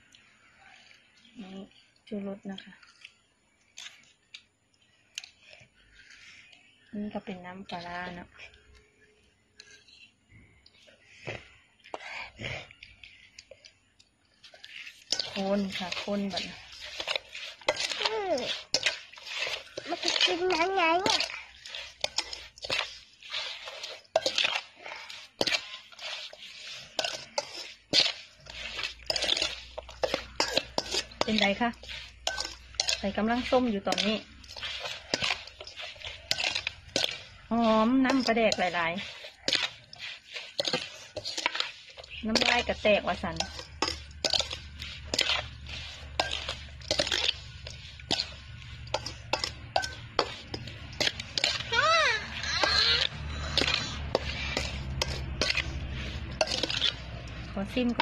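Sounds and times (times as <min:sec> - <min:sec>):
salad tossing wet swishes: 0:14.5 - 0:58.0
spoon clinking metal bowl: 0:14.6 - 0:24.6, 0:25.4 - 0:51.7, 0:52.4 - 0:58.0.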